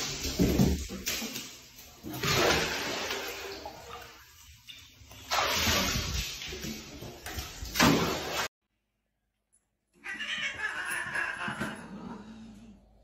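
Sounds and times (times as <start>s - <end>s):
loud splash: 0.0s - 4.2s, 5.2s - 8.5s
water sloshing and splashing: 0.0s - 8.5s.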